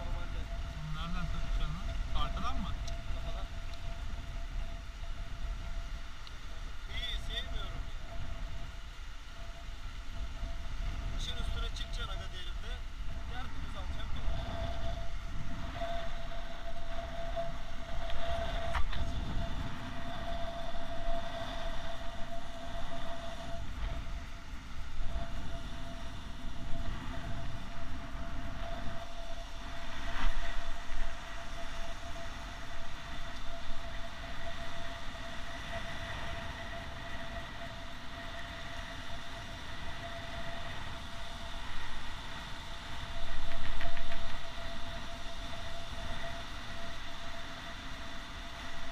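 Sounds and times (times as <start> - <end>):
steady thin hum: 0.0 - 48.9
wind buffeting microphone: 0.0 - 48.9.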